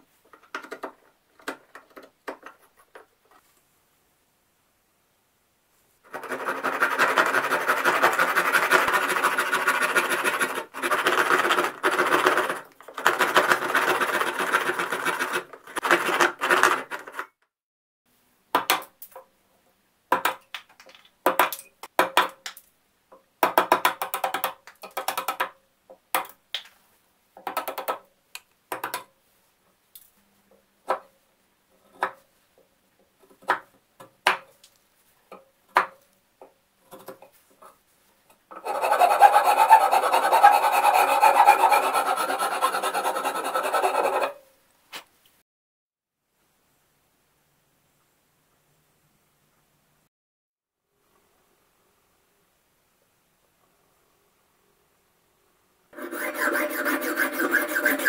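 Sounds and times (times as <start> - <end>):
handsaw cutting wood: 6.1 - 17.0, 38.5 - 44.4, 56.0 - 58.0
chisel scraping wood: 6.1 - 17.2, 38.5 - 44.4, 56.0 - 58.0.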